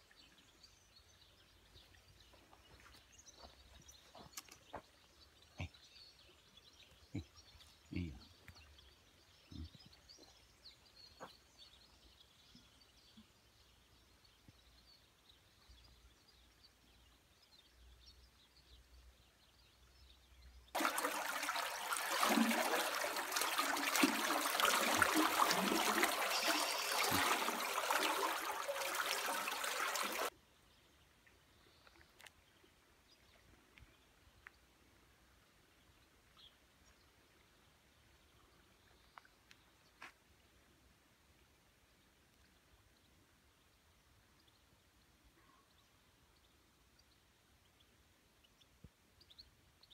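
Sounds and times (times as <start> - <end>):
water gushing and churning: 20.8 - 30.3
faint bird chirps: 25.9 - 30.0, 45.2 - 47.1.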